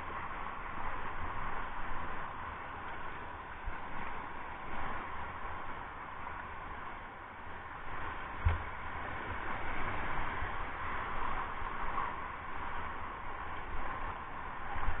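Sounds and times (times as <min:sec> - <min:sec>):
rushing white water: 0:00.0 - 0:15.0
thump: 0:08.4 - 0:08.7.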